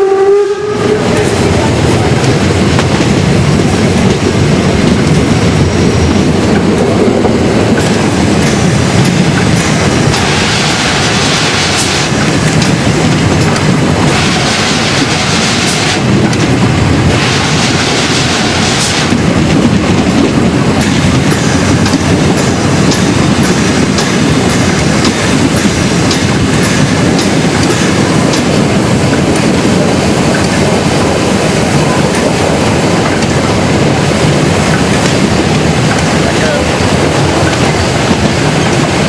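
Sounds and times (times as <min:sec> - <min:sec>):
train wheels clattering over rail joints: 0:01.1 - 0:39.0.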